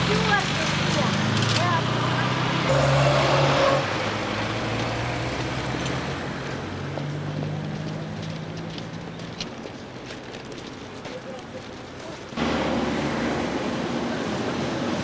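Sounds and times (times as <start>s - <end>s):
car passing close by: 0.0s - 8.5s, 12.4s - 15.0s
street traffic noise: 0.0s - 15.0s.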